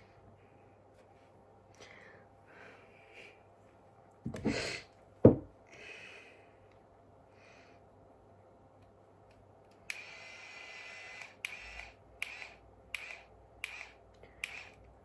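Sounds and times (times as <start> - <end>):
curling iron motor turning: 9.8 - 14.9.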